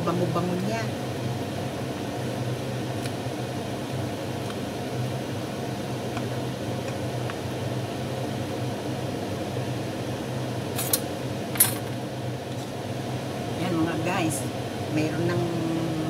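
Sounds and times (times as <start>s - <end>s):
kitchen fan motor humming: 0.0s - 16.0s.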